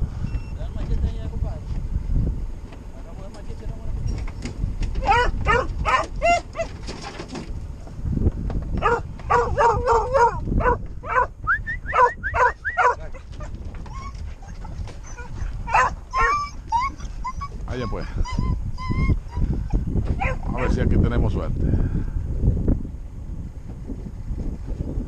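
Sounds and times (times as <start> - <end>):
hound barking and yelping: 5.0 - 6.8, 8.8 - 20.8.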